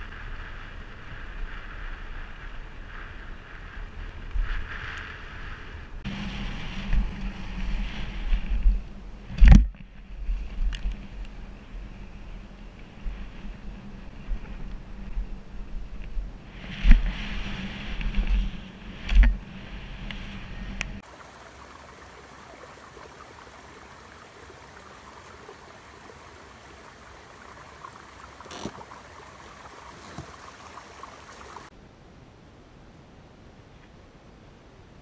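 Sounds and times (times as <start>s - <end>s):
wind rushing over microphone: 0.0s - 21.6s
soft hiss: 21.0s - 34.6s.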